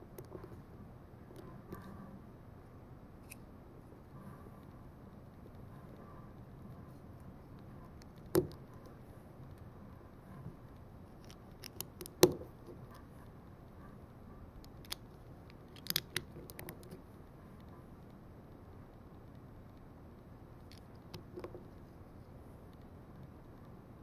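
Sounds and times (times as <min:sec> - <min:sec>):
plastic bricks clicking together: 0:15.7 - 0:17.0.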